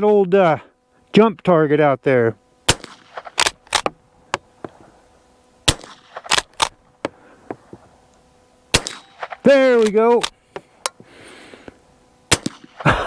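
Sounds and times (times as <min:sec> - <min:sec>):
rifle shot: 0:02.7 - 0:03.9, 0:05.6 - 0:06.8, 0:08.7 - 0:10.3, 0:12.3 - 0:12.9.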